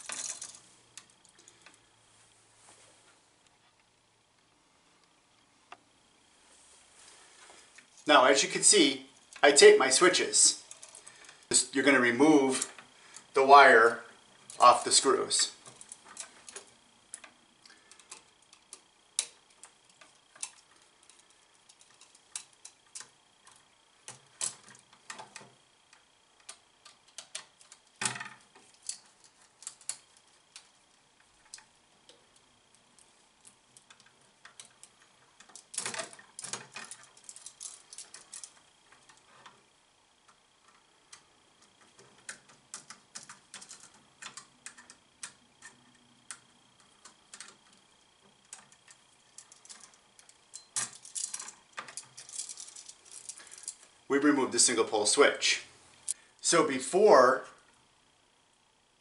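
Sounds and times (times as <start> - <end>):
screwdriver clicking on metal screws: 15.6 - 30.7, 33.8 - 39.2.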